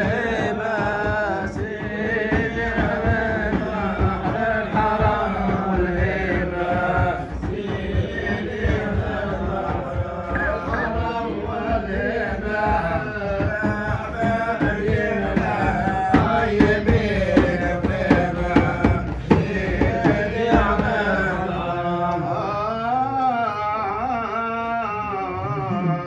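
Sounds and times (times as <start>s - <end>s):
drum beats: 0.0s - 22.7s
man singing wavering melody: 21.6s - 26.0s.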